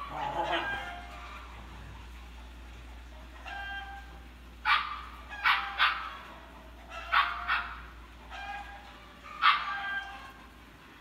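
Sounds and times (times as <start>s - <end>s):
puppy whining: 0.0s - 1.5s
puppies barking: 0.0s - 10.8s.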